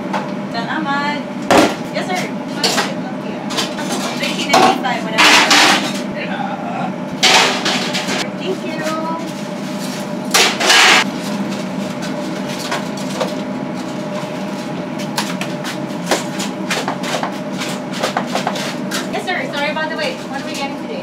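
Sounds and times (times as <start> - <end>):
machine hum: 0.0 - 21.0
utensils and pans clattering: 2.6 - 6.1, 7.2 - 8.3, 10.3 - 11.1
loud burst of noise: 10.3 - 11.1.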